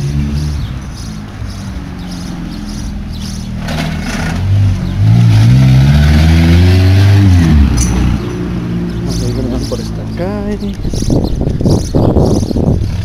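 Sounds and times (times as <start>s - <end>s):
car engine accelerating past: 0.0s - 9.8s.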